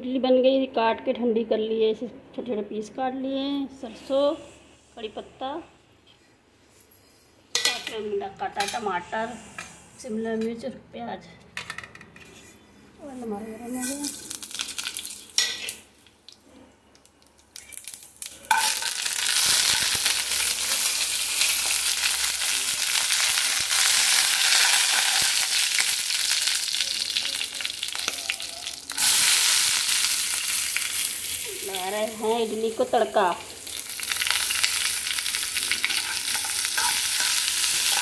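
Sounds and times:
seeds sizzling in hot oil: 13.7s - 16.1s, 17.2s - 38.0s
utensils clinking: 35.7s - 38.0s
steel ladle stirring pan: 35.8s - 38.0s.

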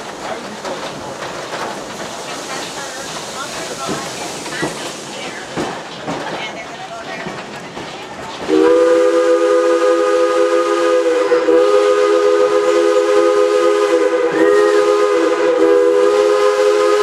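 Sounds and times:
moving train rolling noise: 0.0s - 17.0s
steam locomotive chime whistle: 8.5s - 17.0s.

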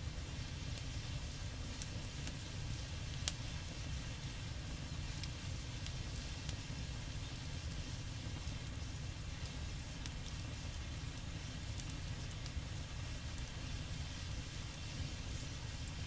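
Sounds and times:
oil crackles and clicks: 11.1s - 12.6s.

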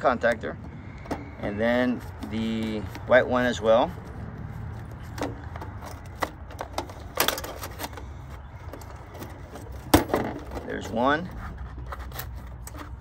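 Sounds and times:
screwdriver clicking and scraping: 11.4s - 13.0s.

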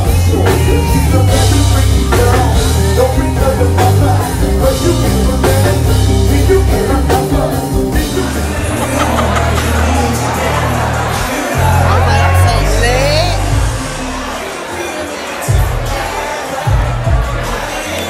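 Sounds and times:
heavy bass line: 0.0s - 14.4s
person singing: 0.0s - 14.5s
live band playing: 0.0s - 18.0s.

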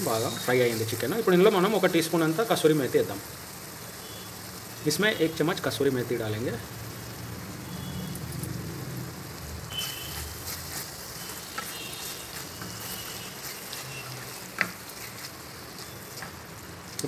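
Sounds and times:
chicken sizzling in oil: 0.0s - 17.0s
spatula stirring: 9.7s - 17.0s.

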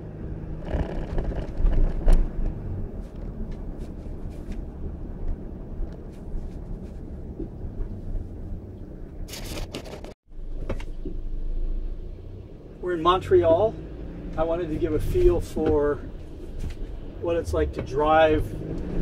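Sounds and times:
road and engine rumble: 0.0s - 19.0s.

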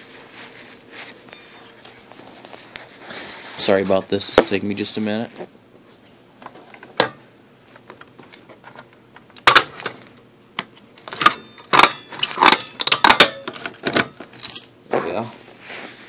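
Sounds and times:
keys jangling: 13.6s - 14.7s.

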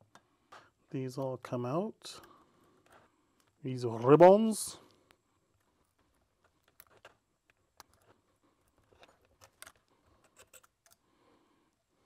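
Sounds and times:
tweezers and screws clicking on metal: 5.8s - 11.0s.

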